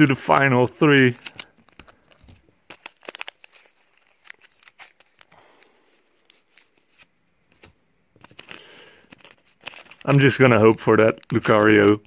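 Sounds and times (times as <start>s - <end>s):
small crackles and clicks: 0.0s - 5.4s, 8.2s - 12.0s
foil wrapper crinkling: 0.0s - 7.0s, 8.2s - 12.0s.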